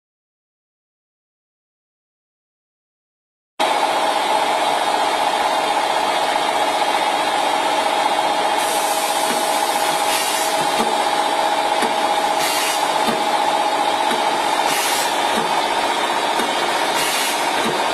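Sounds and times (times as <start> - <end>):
packing machine humming with whine: 3.6 - 17.9
short hissy bursts: 12.4 - 12.9, 14.7 - 15.2.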